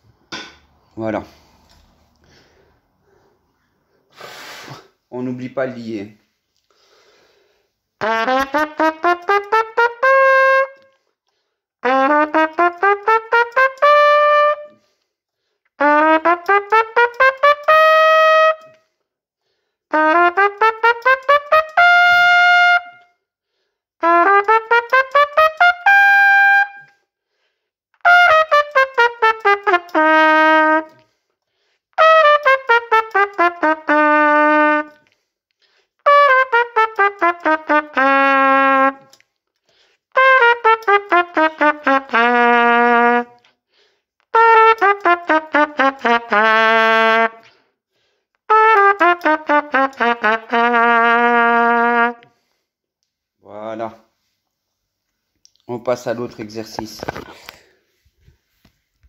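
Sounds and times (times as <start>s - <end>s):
trumpet playing runs of notes: 8.0s - 11.0s, 11.8s - 14.9s, 15.8s - 18.8s, 19.9s - 23.1s, 24.0s - 27.0s, 28.0s - 31.2s, 31.9s - 35.1s, 36.0s - 39.2s, 40.1s - 43.4s, 44.3s - 47.5s, 48.5s - 52.4s.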